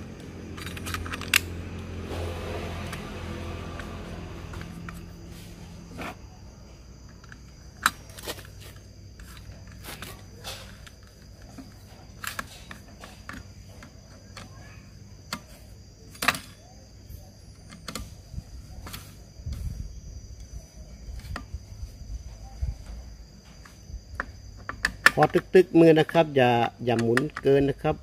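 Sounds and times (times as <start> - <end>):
low hum: 0.0 - 7.0
clicks and knocks of tools: 0.2 - 1.6, 7.1 - 14.6, 15.3 - 16.6.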